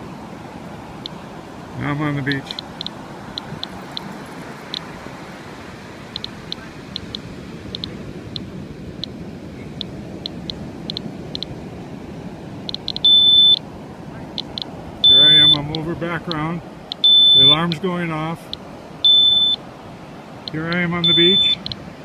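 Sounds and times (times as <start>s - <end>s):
geiger counter clicking: 6.2s - 7.2s, 9.8s - 11.5s, 12.7s - 13.6s, 14.4s - 17.6s
alarm beep: 12.7s - 13.6s, 14.4s - 15.8s, 16.9s - 17.7s, 19.0s - 19.6s, 20.5s - 21.8s.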